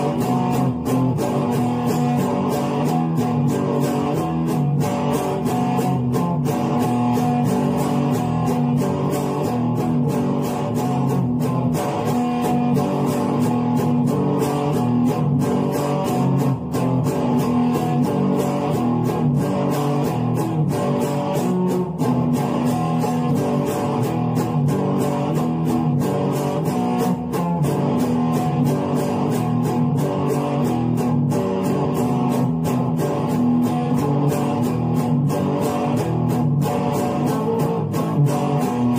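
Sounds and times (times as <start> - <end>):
electric guitar playing: 0.0 - 38.9.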